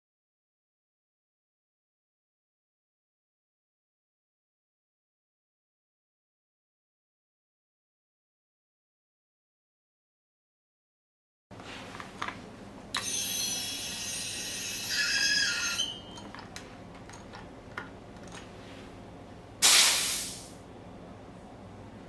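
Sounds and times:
gas hiss with squealing whistle: 13.0s - 16.1s, 19.6s - 20.5s
short burst of venting gas: 19.6s - 20.6s.

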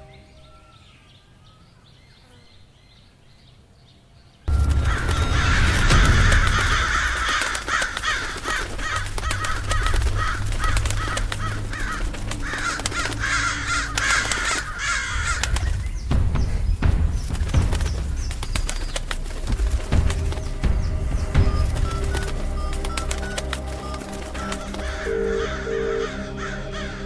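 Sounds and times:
crows cawing: 4.5s - 16.0s, 17.9s - 27.0s
low rumble: 4.5s - 25.2s.

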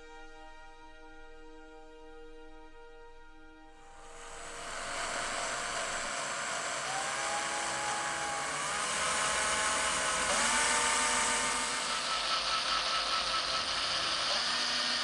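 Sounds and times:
electric drill whirring: 3.9s - 15.0s.

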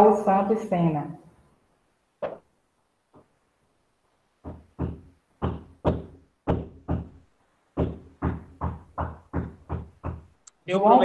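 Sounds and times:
sharp knocking thuds: 4.4s - 10.4s.

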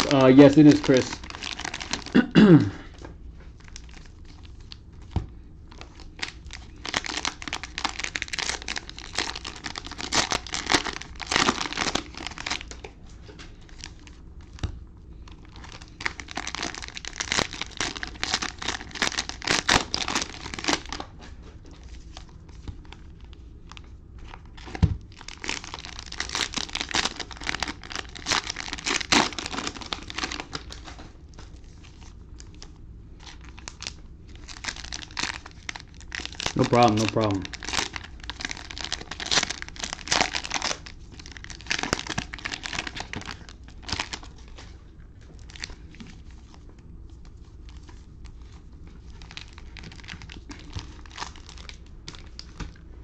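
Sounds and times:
cellophane crinkling and tearing: 0.0s - 2.3s, 3.5s - 52.9s.

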